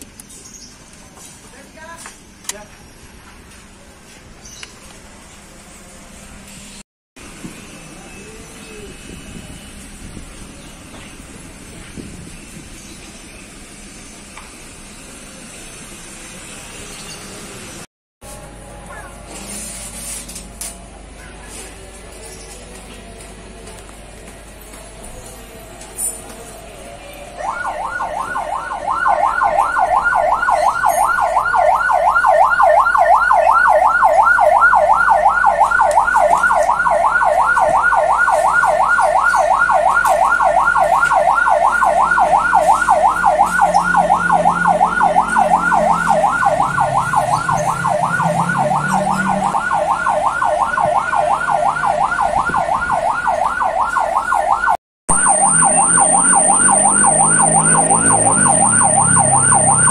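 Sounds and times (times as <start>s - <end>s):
ambulance siren yelping: 26.9s - 59.9s.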